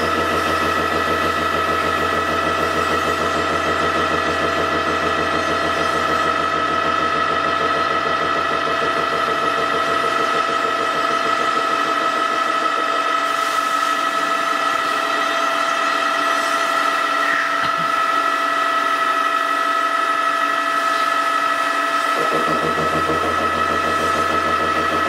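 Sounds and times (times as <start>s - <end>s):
low hum: 0.0s - 16.2s, 22.2s - 25.0s
milling machine whining: 0.0s - 25.0s.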